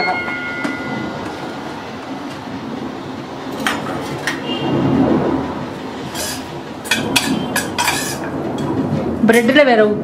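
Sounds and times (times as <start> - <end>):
spoon scraping steel bowl: 6.2 - 8.3.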